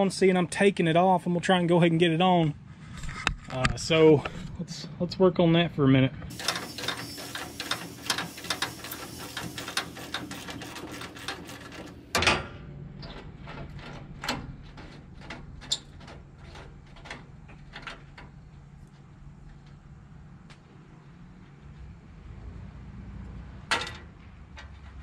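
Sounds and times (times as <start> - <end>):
ratchet wrench clicking: 6.3 - 11.9.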